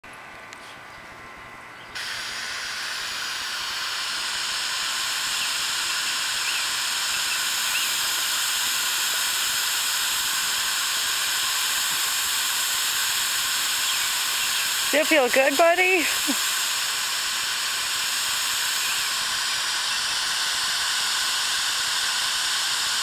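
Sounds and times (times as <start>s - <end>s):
water mist spraying hiss: 2.0s - 23.0s.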